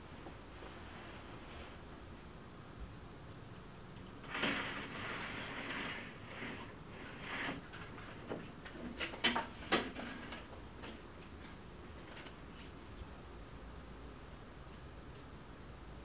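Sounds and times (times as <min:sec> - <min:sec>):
blind slats clicking: 0:04.2 - 0:07.6
plastic blind slats rustling: 0:04.2 - 0:11.0.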